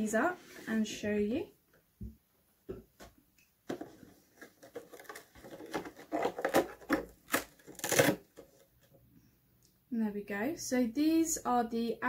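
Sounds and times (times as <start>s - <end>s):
cardboard box handling: 3.7s - 8.6s.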